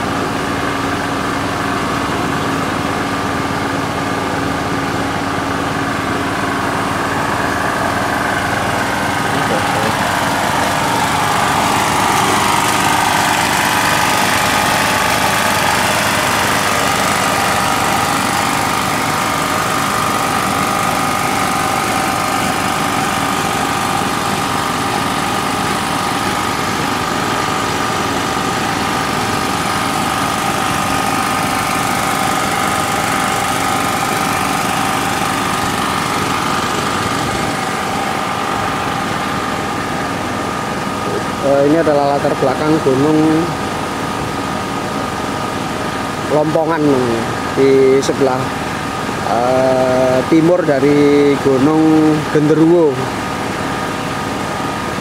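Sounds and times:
small engine running: 0.0 - 55.0.

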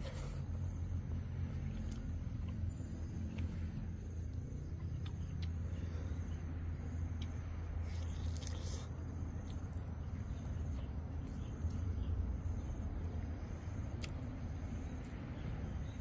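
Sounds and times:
person eating and chewing: 7.1 - 9.7.

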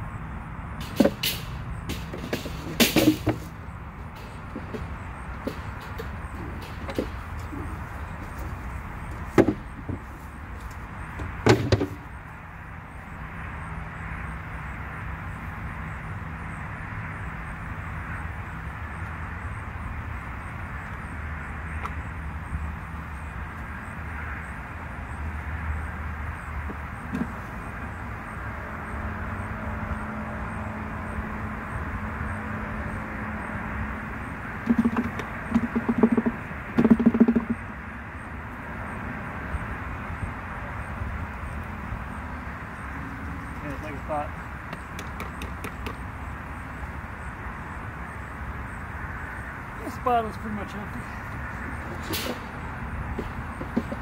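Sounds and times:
wooden boxes knocking: 1.9 - 10.1, 11.2 - 12.1, 34.6 - 37.7, 44.7 - 46.0, 53.2 - 54.0.

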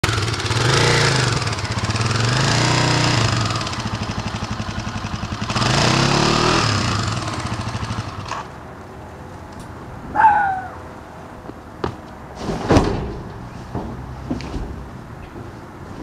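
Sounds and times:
motorcycle engine revving and idling: 0.0 - 8.6.

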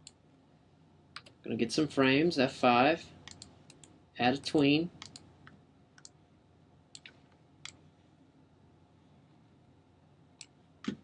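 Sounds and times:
computer mouse clicks: 3.2 - 4.0, 5.0 - 6.2, 6.9 - 7.8.

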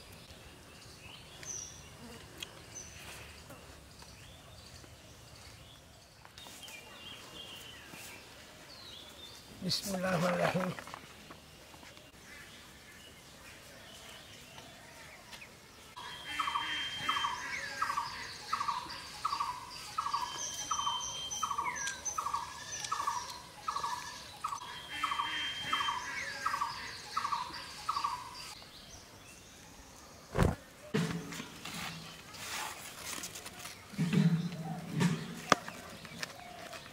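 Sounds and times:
dull thump: 30.3 - 31.4.

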